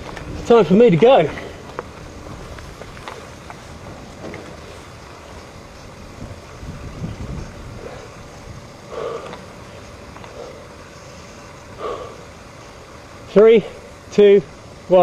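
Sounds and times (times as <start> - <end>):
rushing airflow: 0.0 - 14.9
aircraft engine noise: 0.0 - 15.0.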